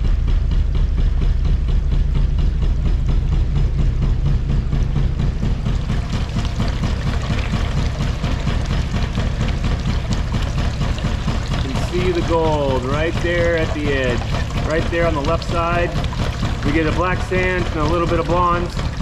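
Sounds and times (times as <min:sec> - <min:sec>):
shaker table rumbling and knocking: 0:00.0 - 0:19.0
water washing across deck: 0:05.6 - 0:19.0.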